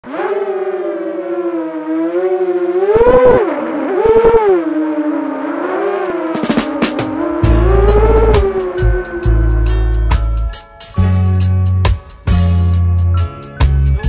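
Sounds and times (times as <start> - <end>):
drone motors whining: 0.0 - 10.6
music: 6.3 - 14.0.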